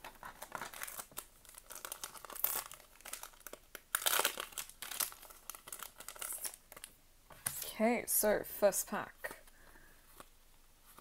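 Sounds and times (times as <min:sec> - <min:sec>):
foil wrapper crinkling and tearing: 0:00.0 - 0:06.9.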